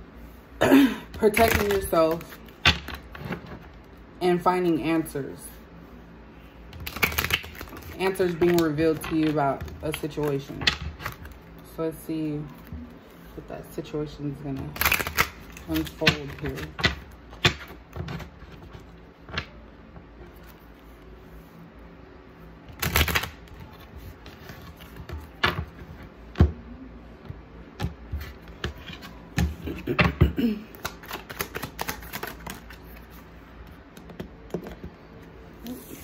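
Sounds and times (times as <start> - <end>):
cards clicking and slapping: 1.3 - 3.4, 6.8 - 11.4, 14.8 - 18.7, 22.7 - 25.6, 30.7 - 32.8.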